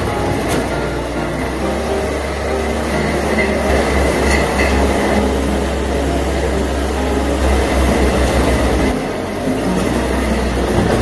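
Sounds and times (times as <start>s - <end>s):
compost turner churning: 0.0s - 11.0s
loader diesel engine under load: 0.0s - 11.0s.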